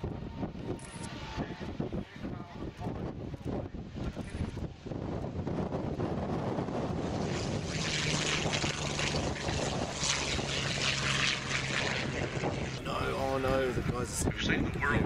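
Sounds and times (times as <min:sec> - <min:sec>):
propeller plane engine droning: 0:00.0 - 0:15.0
wind buffeting microphone: 0:00.0 - 0:15.0.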